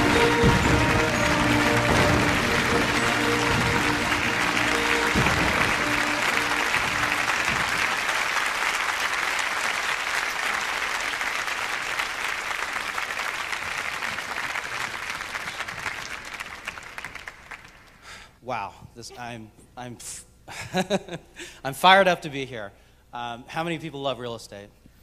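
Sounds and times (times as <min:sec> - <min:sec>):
music: 0:00.0 - 0:08.2
audience applauding: 0:00.0 - 0:18.1.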